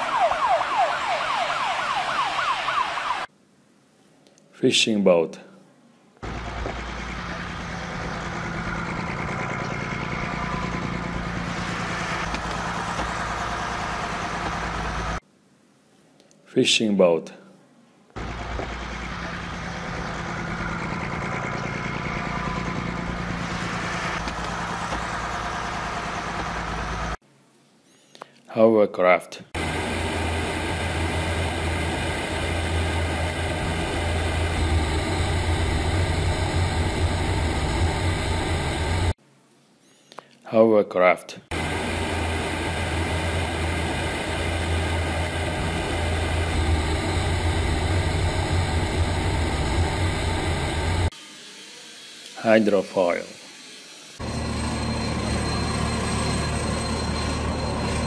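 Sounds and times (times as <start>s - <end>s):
hovercraft engine hum: 6.2s - 15.2s, 18.2s - 27.2s, 29.6s - 39.2s, 41.5s - 51.1s, 54.2s - 58.0s.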